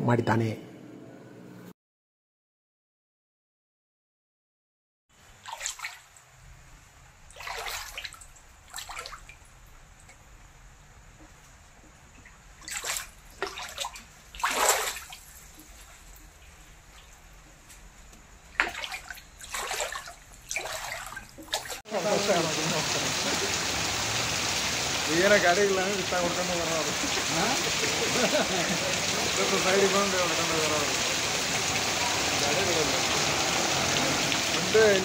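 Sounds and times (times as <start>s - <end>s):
water sloshing and splashing: 5.3s - 6.4s, 7.3s - 10.1s, 11.9s - 17.3s, 18.5s - 35.0s.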